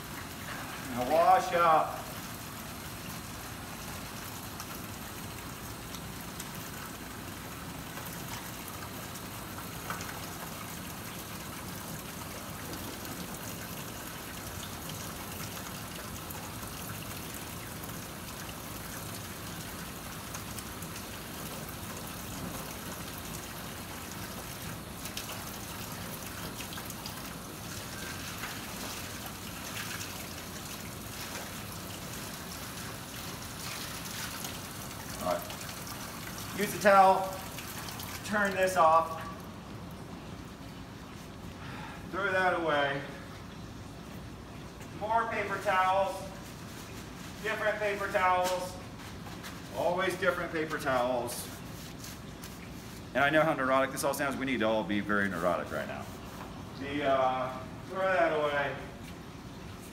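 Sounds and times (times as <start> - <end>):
hands scrubbing under water: 50.6 - 53.2.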